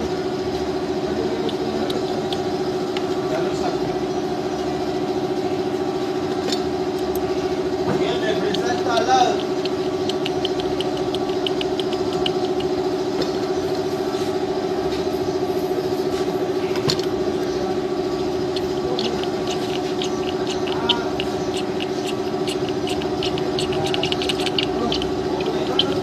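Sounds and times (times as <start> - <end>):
motorcycle engine idling: 0.0 - 26.0
fast light ticking of chain: 8.3 - 12.9, 18.5 - 26.0.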